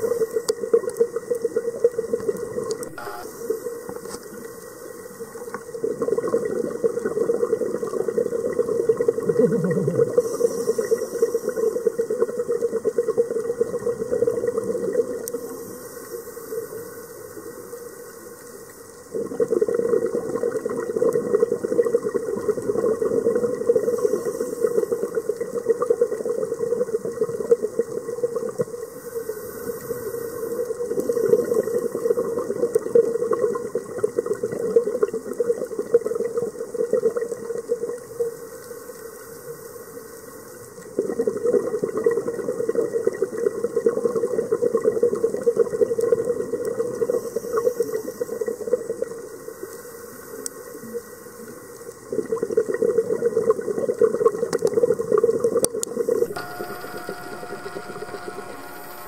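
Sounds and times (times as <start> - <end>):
regulator bubbles rushing: 5.7 - 10.3
diver breathing underwater: 9.6 - 12.0, 23.7 - 25.2.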